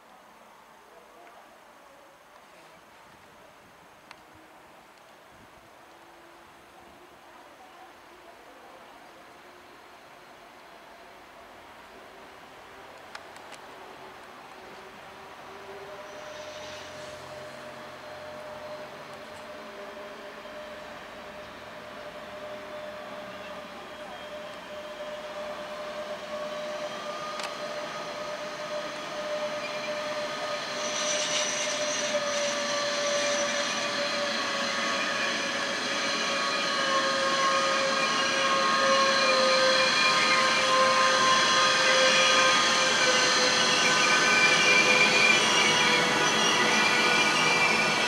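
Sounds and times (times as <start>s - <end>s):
electric freight train passing: 9.3s - 48.0s
high squealing tones: 26.0s - 48.0s.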